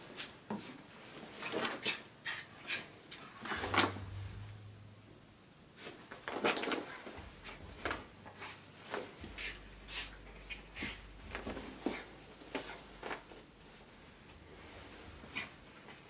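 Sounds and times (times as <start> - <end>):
dog scuffing on carpet: 5.8 - 16.0.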